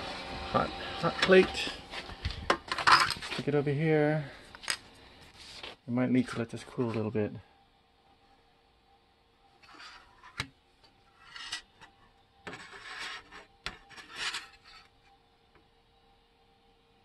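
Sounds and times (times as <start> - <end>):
plate scraping on countertop: 12.5 - 14.9.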